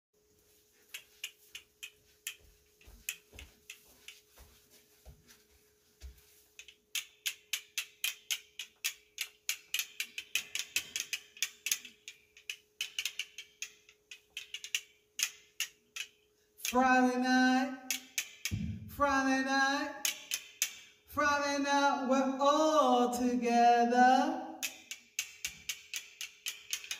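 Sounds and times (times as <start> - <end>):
castanets clicking: 6.6 - 16.2.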